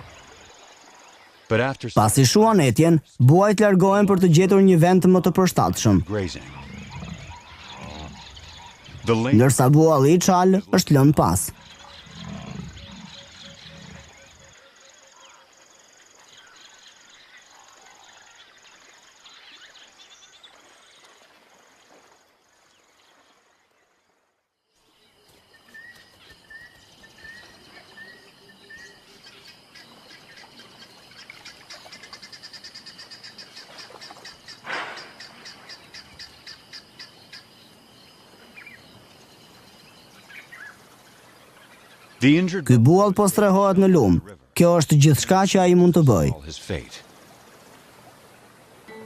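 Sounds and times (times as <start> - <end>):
insects trilling: 3.5 - 23.4, 24.8 - 49.0
birds chirping and calling: 5.6 - 14.5.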